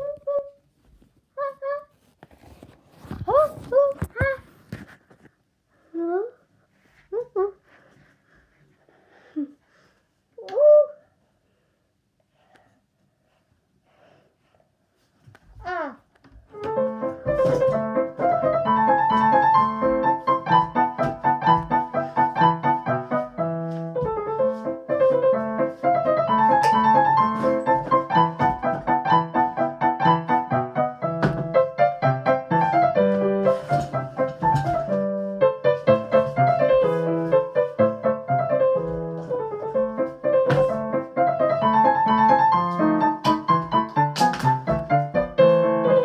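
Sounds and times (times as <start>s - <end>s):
fast piano piece: 16.6s - 46.0s.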